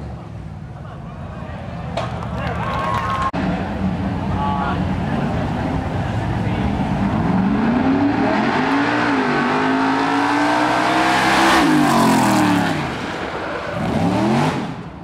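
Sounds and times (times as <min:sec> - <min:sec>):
racing engine at full throttle: 0:03.4 - 0:15.0.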